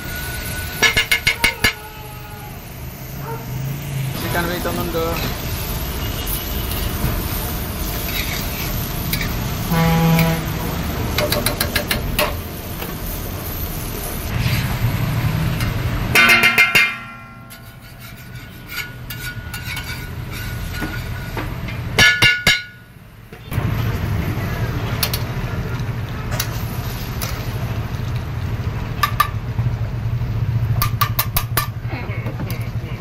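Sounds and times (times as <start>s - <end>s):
spatula clinking against steel pans: 0.8s - 1.8s, 15.6s - 21.2s.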